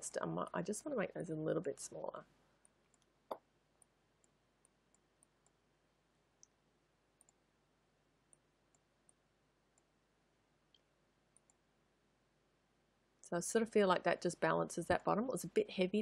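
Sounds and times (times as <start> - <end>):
computer mouse clicks: 7.2 - 7.4, 10.7 - 11.6.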